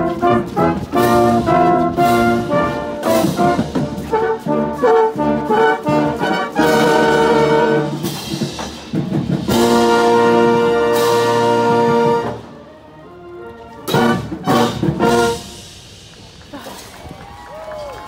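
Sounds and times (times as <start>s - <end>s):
marching band brass playing: 0.0s - 16.6s.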